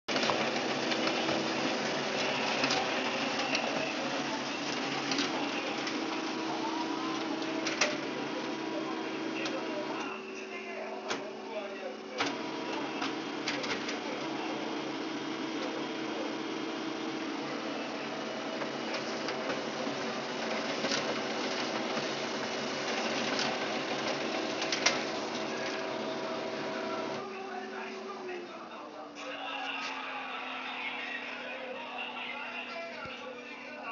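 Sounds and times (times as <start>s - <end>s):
printer whirring: 0.1s - 33.9s
printer clicks: 7.2s - 8.1s, 22.9s - 25.8s.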